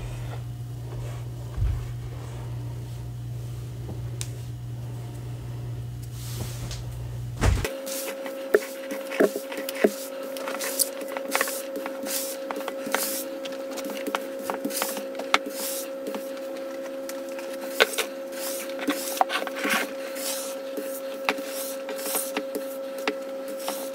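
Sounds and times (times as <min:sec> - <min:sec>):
scratchy rubbing on countertop: 0:07.7 - 0:16.7, 0:17.3 - 0:23.9.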